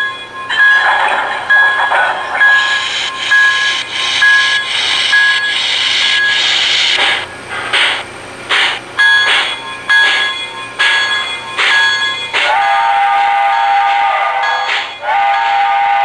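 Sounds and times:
steam locomotive chuffing: 0.0 - 16.0
steam hiss: 2.0 - 9.5.

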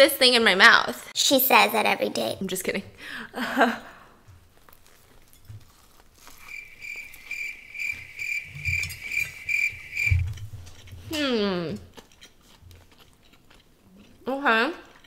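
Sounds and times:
soft chewing sounds: 3.9 - 15.0
cricket chirping: 6.4 - 10.4.

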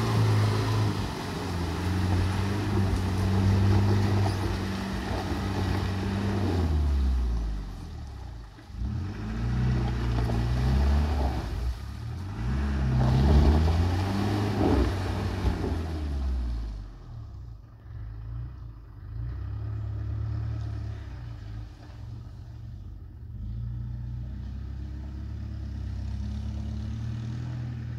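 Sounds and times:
diesel engine revving under load: 0.0 - 7.8, 8.7 - 22.0.

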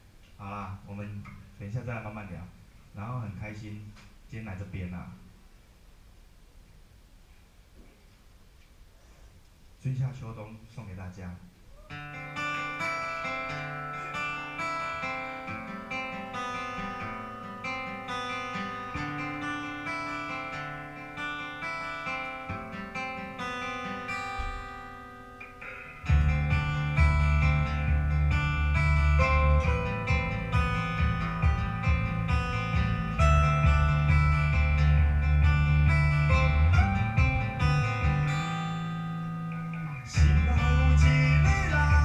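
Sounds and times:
acoustic guitar picking: 11.7 - 42.0
bass and drums: 26.0 - 42.0.

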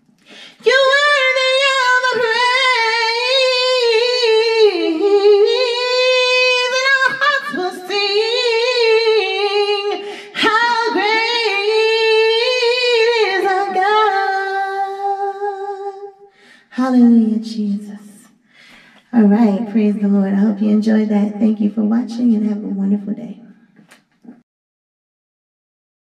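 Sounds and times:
singer breathing: 0.2 - 0.6, 10.0 - 10.4, 16.3 - 16.8, 18.4 - 19.1
woman singing a cappella: 0.3 - 18.4, 19.0 - 23.5.

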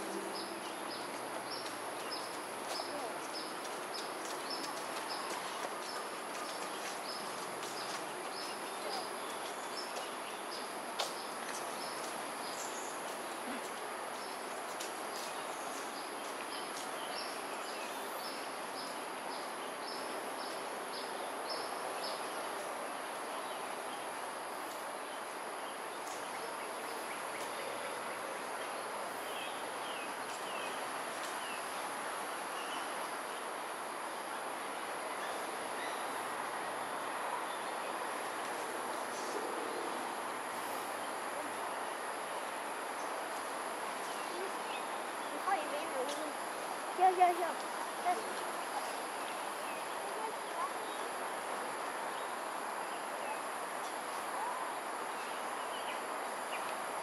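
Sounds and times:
city background noise: 0.0 - 57.0.

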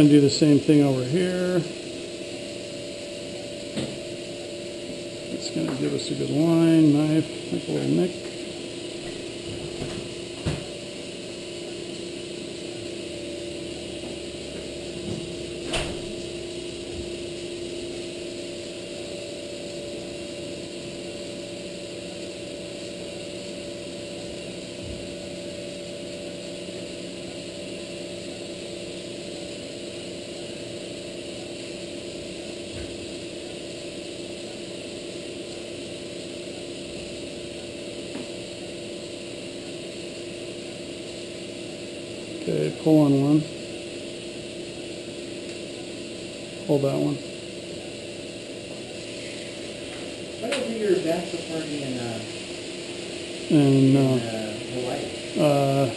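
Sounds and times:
equipment humming: 0.0 - 55.9.

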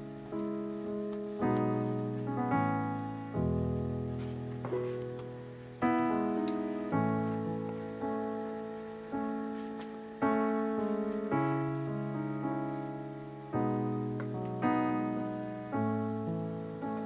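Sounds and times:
slow solo piano chords: 0.0 - 17.0.

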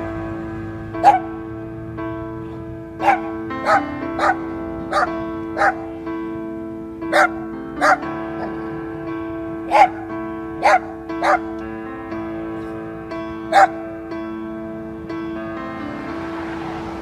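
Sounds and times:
soft background music: 0.0 - 17.0
dog barking: 1.0 - 1.3, 3.0 - 5.9, 7.1 - 8.6, 9.7 - 11.5, 13.5 - 13.8.

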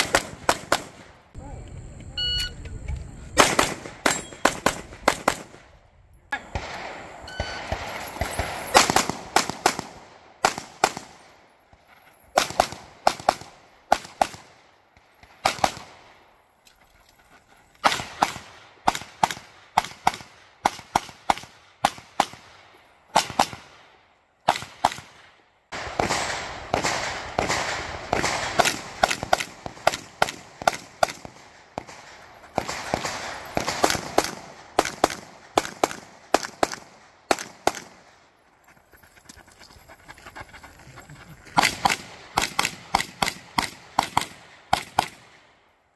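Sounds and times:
pistol gunshots: 0.0 - 1.2, 3.3 - 5.7, 6.4 - 11.4, 12.4 - 14.6, 15.2 - 16.1, 17.8 - 23.9, 24.5 - 38.1, 41.6 - 45.4.

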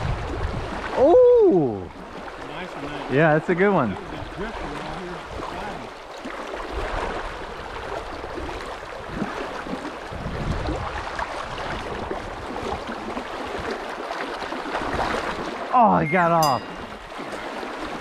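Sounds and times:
river water rushing over rocks: 12.9 - 18.0.

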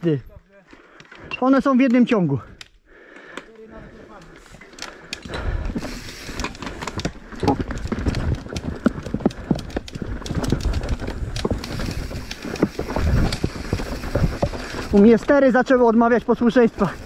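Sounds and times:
bike rattling and knocking: 4.1 - 17.0
tyre and wind rumble: 5.3 - 17.0.

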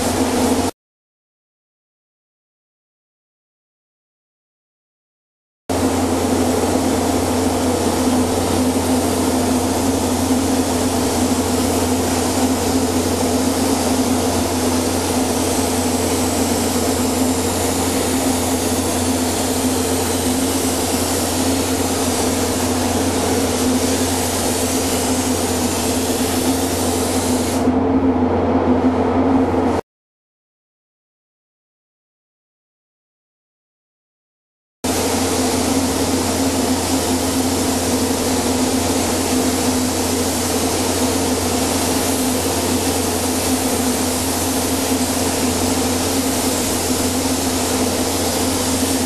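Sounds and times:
steady mechanical hum: 5.7 - 29.8, 34.9 - 49.0
paint spray gun hissing: 5.8 - 27.7, 34.9 - 49.0.

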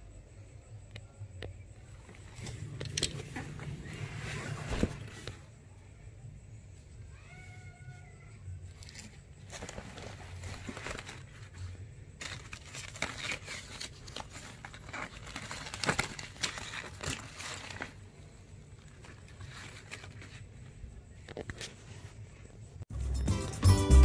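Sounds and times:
packaging rustling and crinkling: 8.7 - 20.6.

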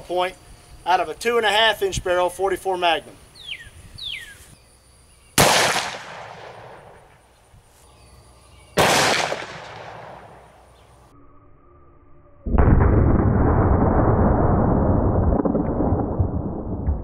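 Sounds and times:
revolver gunshots echoing: 5.4 - 7.1, 8.8 - 10.6.

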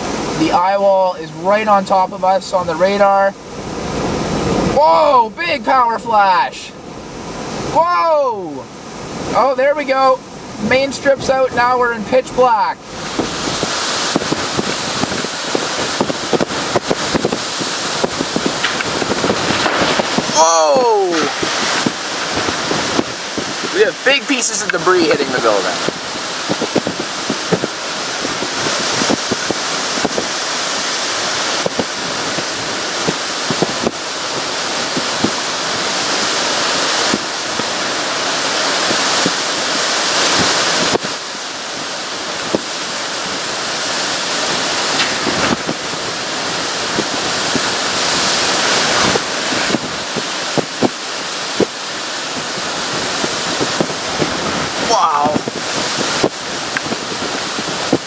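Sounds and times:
hurricane wind and rain rushing: 0.0 - 58.0
debris ticking and knocking: 18.0 - 20.3.

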